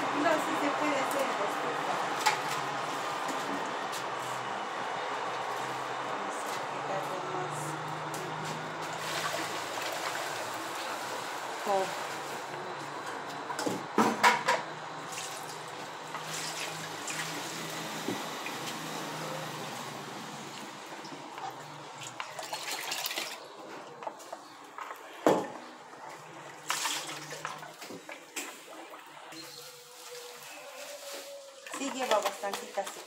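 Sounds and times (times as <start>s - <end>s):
liquid sloshing in a pot: 21.3s - 24.0s, 25.4s - 29.3s
liquid pouring into a metal bowl: 22.0s - 23.6s.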